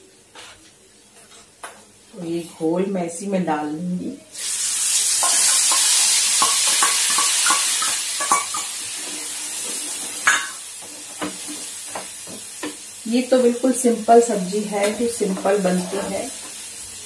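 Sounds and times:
food sizzling in hot oil: 0:04.3 - 0:17.0.

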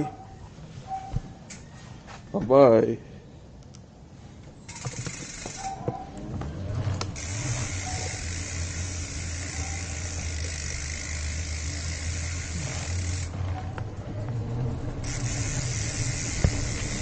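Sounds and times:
bicycle tyres rolling on concrete: 0:04.4 - 0:17.0.

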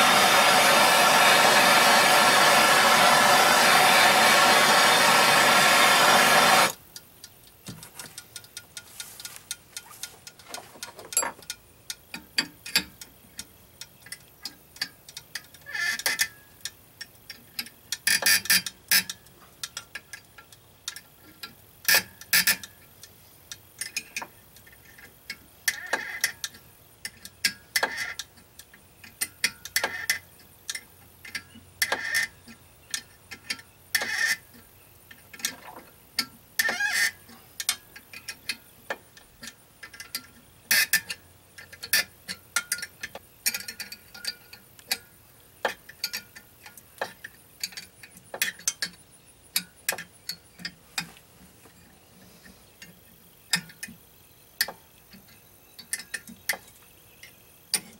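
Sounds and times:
wrench clicking: 0:04.4 - 0:32.3.

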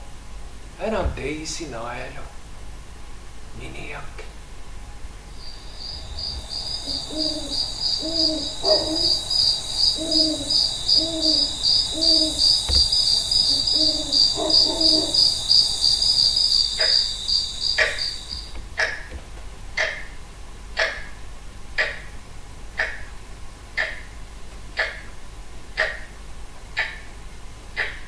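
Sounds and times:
crickets chirping: 0:04.8 - 0:20.3
owl hooting: 0:05.4 - 0:19.1, 0:27.8 - 0:28.0
soft knocks: 0:12.5 - 0:13.2, 0:17.8 - 0:19.5.

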